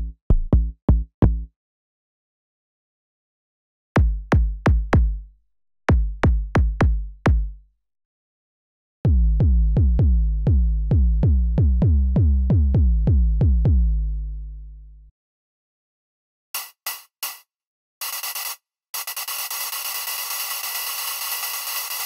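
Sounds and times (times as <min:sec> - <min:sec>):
deep synthesized drum hits: 0:09.1 - 0:13.9
held deep bass tone: 0:09.1 - 0:15.1.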